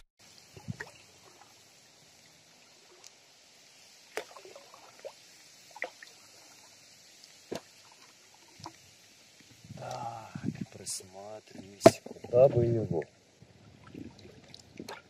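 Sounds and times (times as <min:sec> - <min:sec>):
oars dipping and dripping: 0:00.2 - 0:15.0
oar splashes and knocks: 0:11.6 - 0:12.4.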